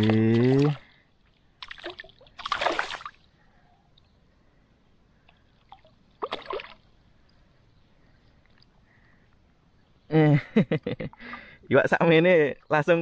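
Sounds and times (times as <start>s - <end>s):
fish splashing in water: 1.6s - 3.3s, 5.6s - 6.9s.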